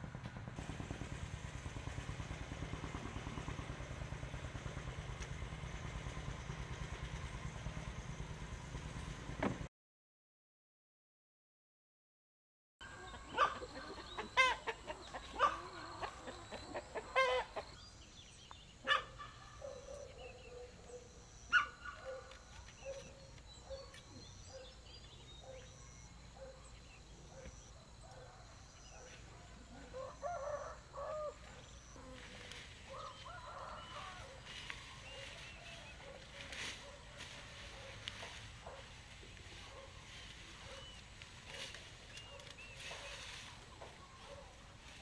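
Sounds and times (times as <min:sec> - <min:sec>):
chickens clucking: 0:12.8 - 0:17.8.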